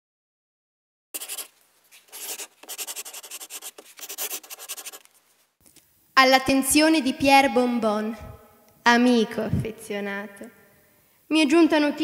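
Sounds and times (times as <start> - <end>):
pen scratching on paper: 1.2 - 5.1.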